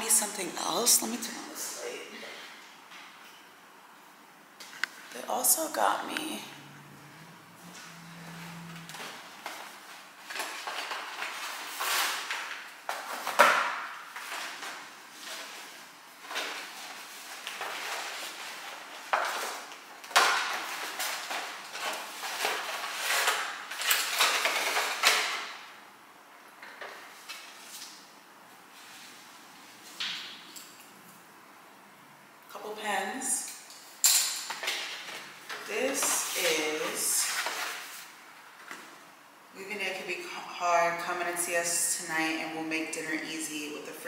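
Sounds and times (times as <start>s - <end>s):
objects knocking together: 19.0s - 25.6s.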